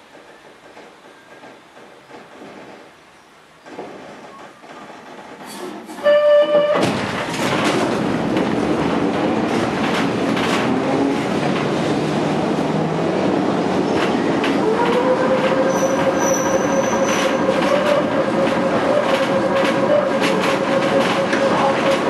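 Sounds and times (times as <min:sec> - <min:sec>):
tram wheels clattering on rails: 0:00.0 - 0:22.0
thin high squeal: 0:15.7 - 0:17.9.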